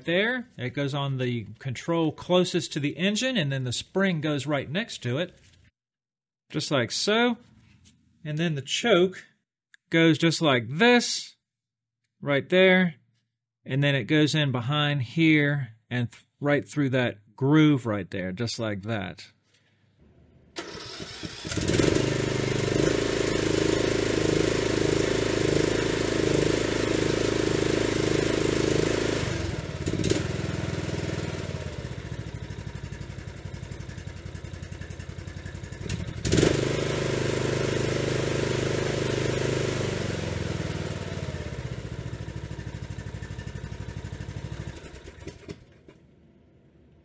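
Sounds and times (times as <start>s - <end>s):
lawn tractor engine running: 20.6s - 46.0s.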